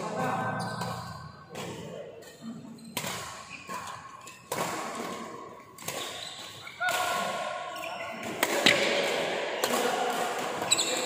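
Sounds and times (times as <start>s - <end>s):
racket hitting shuttlecock: 2.9s - 11.0s.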